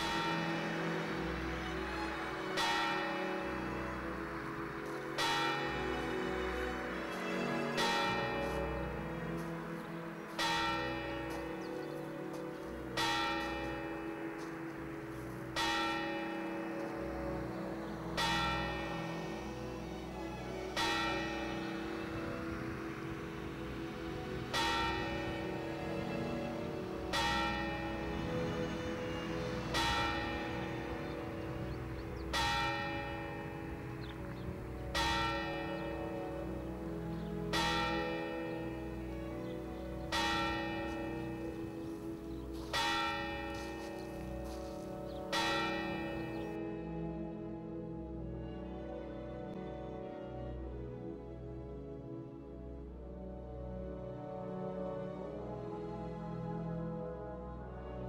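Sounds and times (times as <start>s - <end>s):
bell tolling slowly: 0.0s - 6.3s, 13.0s - 34.2s.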